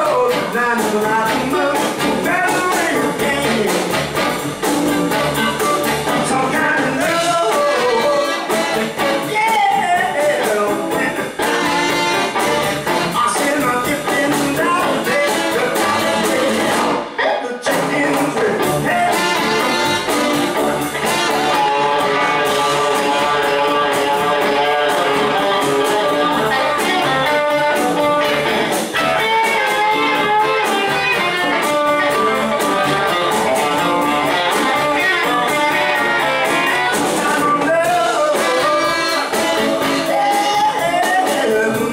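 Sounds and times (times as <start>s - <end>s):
drums: 0.0s - 41.9s
electric guitar: 0.0s - 41.9s
upright bass: 0.0s - 41.9s
saxophones: 3.4s - 9.5s, 11.4s - 13.3s, 15.1s - 17.1s, 18.9s - 37.3s, 38.2s - 40.8s.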